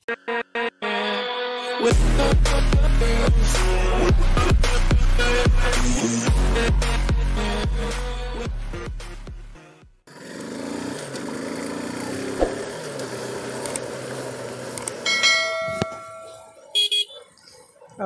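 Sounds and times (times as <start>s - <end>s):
intro music: 0.2s - 9.7s
motorcycle engine running: 10.1s - 16.6s
click and bell-like ding: 15.1s - 16.5s.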